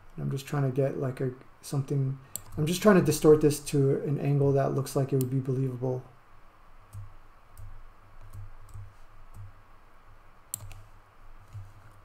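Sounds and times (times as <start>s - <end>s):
computer mouse clicks: 2.3s - 2.7s, 10.5s - 10.9s.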